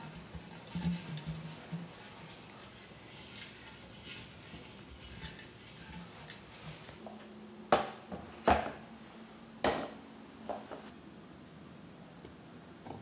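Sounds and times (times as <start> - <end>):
paper towel rubbing glass jar: 0.0 - 6.9.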